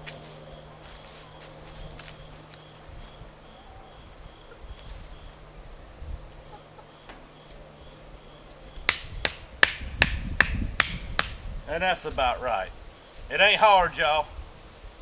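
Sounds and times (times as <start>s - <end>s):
faint insect drone: 0.0s - 15.0s
hammer knocking wooden stake: 8.9s - 11.4s.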